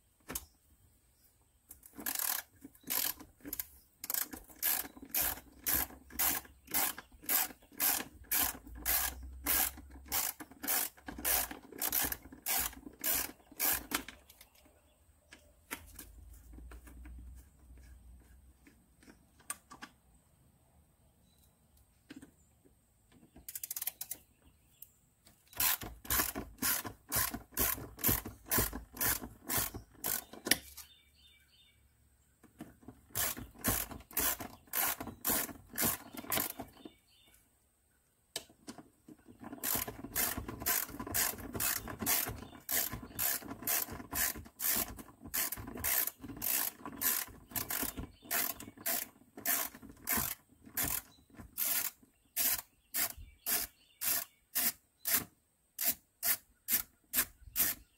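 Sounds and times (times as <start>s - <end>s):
socket ratchet clicking: 1.8s - 14.2s, 25.5s - 30.7s, 33.1s - 36.6s, 39.5s - 57.8s.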